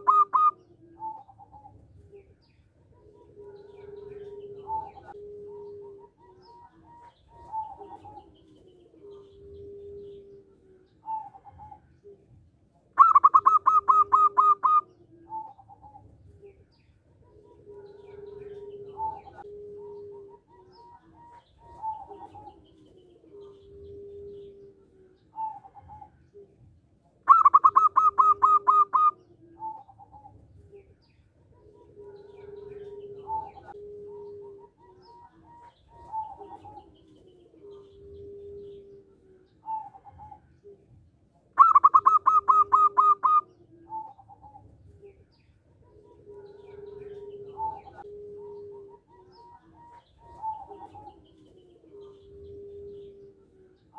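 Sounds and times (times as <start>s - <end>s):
dove cooing: 0.0s - 53.9s.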